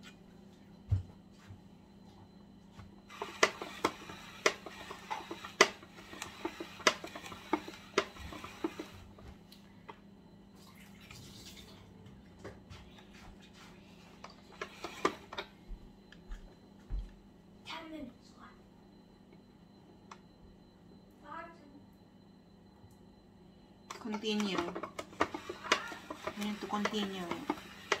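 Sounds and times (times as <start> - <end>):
spiralizer cutting carrot: 3.1 - 9.0, 24.0 - 28.0.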